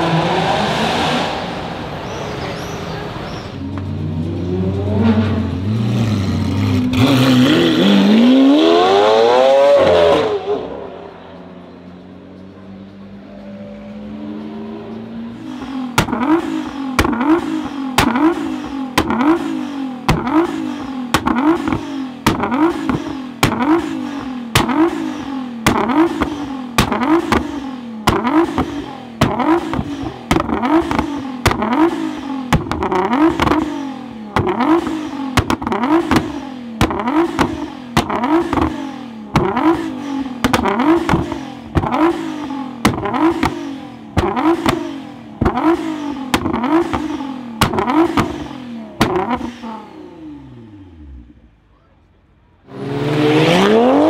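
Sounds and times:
car engine revving: 0:00.0 - 0:54.0
exhaust bangs: 0:15.1 - 0:51.7.

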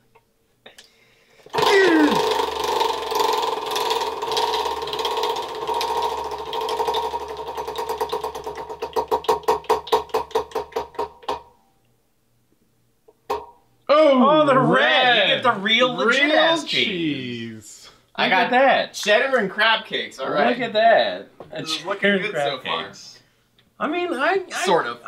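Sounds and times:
prize wheel clicker ticking: 0:01.6 - 0:11.4.

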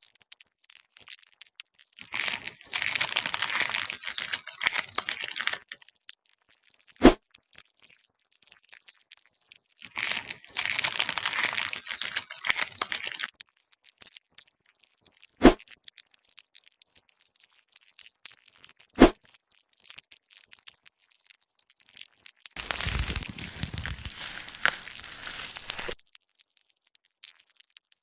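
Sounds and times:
knife scraping crunchy crust: 0:22.6 - 0:26.0.

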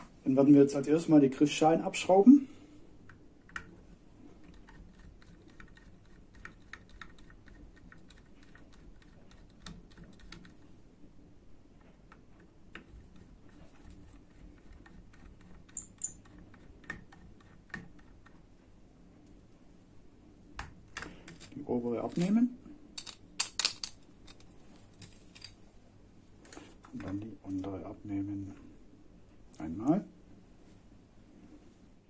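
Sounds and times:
screwdriver clicking and scraping: 0:15.1 - 0:17.8.

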